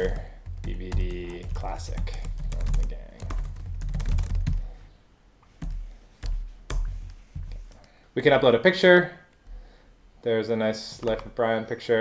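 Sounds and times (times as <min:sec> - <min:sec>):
keyboard typing: 0:00.0 - 0:04.7, 0:05.6 - 0:07.9.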